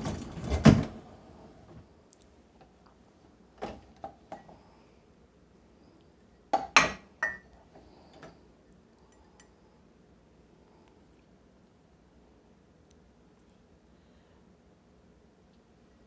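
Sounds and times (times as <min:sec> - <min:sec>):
mug clinking against dishes: 0:06.6 - 0:07.5.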